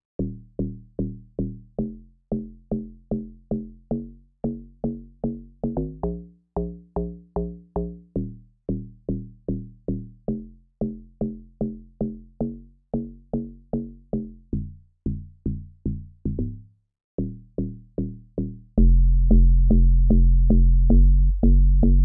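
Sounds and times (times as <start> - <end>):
log drum bass pattern: 4.4 - 16.6.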